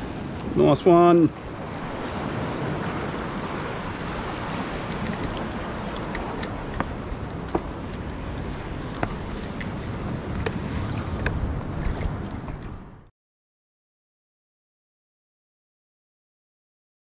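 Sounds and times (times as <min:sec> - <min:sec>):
wind on microphone: 0:00.0 - 0:13.1
water washing against rock: 0:01.8 - 0:12.8.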